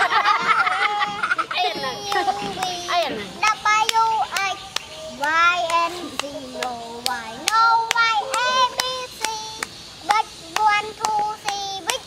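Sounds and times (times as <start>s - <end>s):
young children singing: 0.0s - 12.0s
hands clapping: 1.8s - 2.9s, 3.8s - 9.7s, 10.5s - 12.0s.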